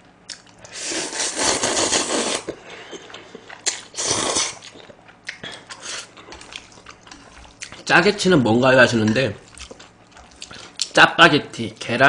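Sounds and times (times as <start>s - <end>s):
person slurping noodles: 0.7s - 4.9s.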